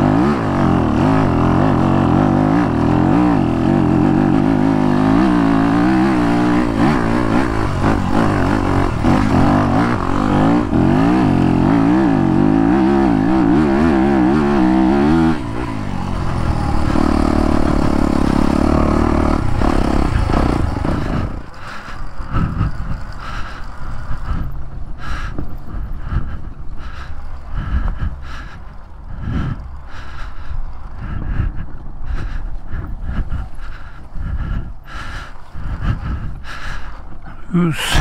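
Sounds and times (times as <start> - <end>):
motorcycle engine revving: 0.0 - 38.0
wind noise: 19.5 - 38.0.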